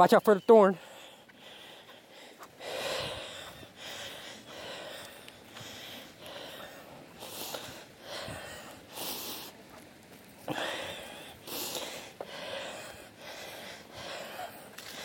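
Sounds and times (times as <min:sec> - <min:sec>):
heavy breathing: 0:00.7 - 0:09.8, 0:10.4 - 0:15.0.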